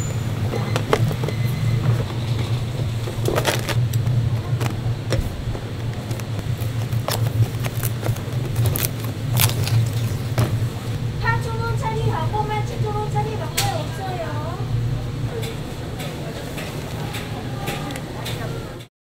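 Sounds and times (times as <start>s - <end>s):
steady low hum: 0.0s - 18.3s
cardboard box folding clicks: 3.2s - 10.5s.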